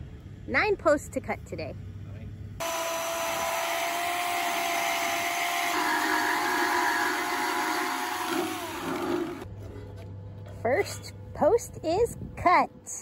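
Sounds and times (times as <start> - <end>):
bandsaw cutting steel: 2.6 - 9.5.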